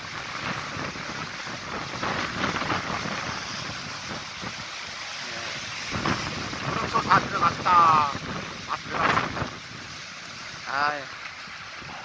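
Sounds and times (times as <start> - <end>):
waves washing onto rocks: 0.0 - 12.0
wind rumbling on microphone: 0.0 - 12.0.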